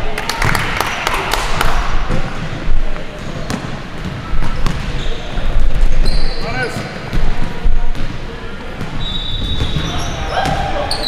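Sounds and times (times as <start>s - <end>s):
ball bouncing: 1.6s - 5.0s, 6.7s - 8.2s, 8.8s - 10.7s.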